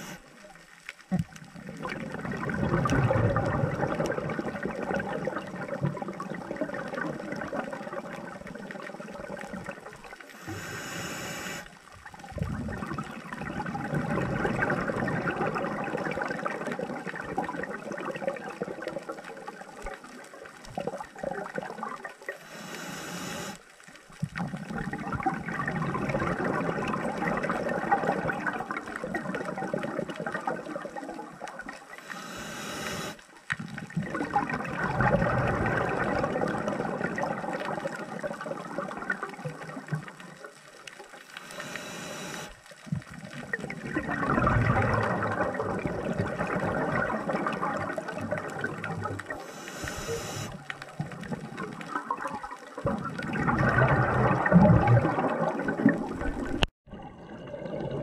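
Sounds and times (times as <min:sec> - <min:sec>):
regulator hissing inhalations: 0:00.0 - 0:00.2, 0:10.3 - 0:11.7, 0:22.4 - 0:23.6, 0:32.0 - 0:33.2, 0:41.4 - 0:42.6, 0:49.4 - 0:50.6
exhaled bubbles rushing: 0:01.4 - 0:10.7, 0:12.1 - 0:22.4, 0:24.3 - 0:32.0, 0:33.6 - 0:41.6, 0:43.0 - 0:58.0.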